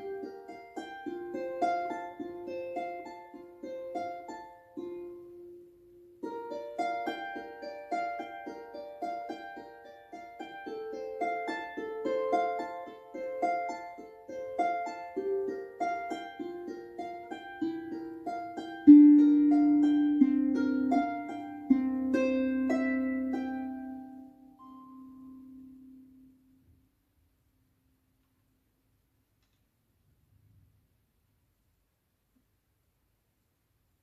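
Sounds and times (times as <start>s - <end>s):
harp plucked notes: 0.0s - 26.7s.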